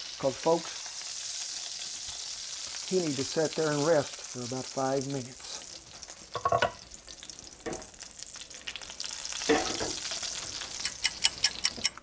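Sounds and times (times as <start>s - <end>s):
butter and oil sizzling in a skillet: 0.0s - 12.0s
sharp clicks: 10.8s - 12.0s.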